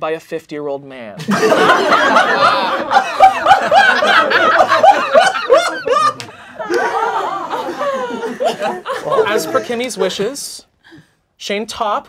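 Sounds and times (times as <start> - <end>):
people laughing loudly: 1.2 - 10.5.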